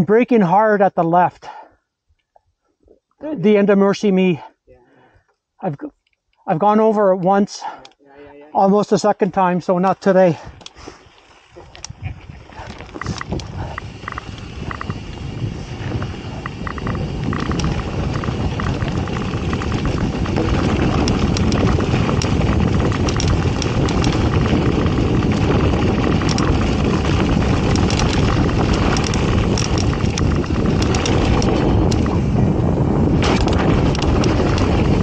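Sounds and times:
tyres on dirt and gravel: 9.7 - 35.0
bike clicks and rattles: 10.4 - 35.0
wind over microphone: 11.4 - 35.0.

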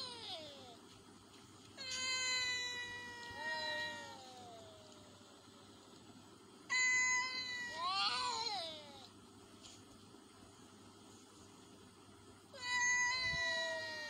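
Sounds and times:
cats yowling: 1.8 - 5.2, 6.7 - 9.1, 12.6 - 14.0.

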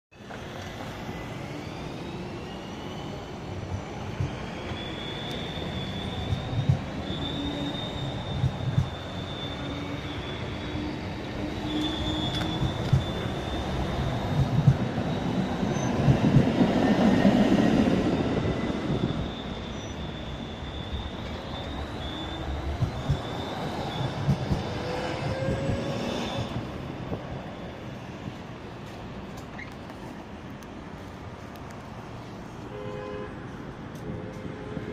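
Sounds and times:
street traffic noise: 0.1 - 34.9
tram wheels squealing: 0.2 - 28.2, 28.9 - 30.2
wheels knocking on track: 14.3 - 14.9, 24.0 - 26.6.

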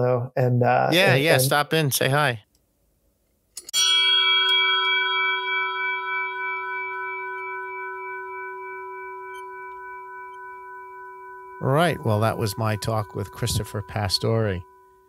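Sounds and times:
struck metal bell ringing: 3.7 - 15.0.

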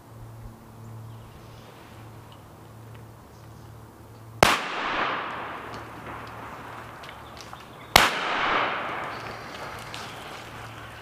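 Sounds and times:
shotgun shots with echo: 4.4 - 7.1, 7.9 - 10.1.

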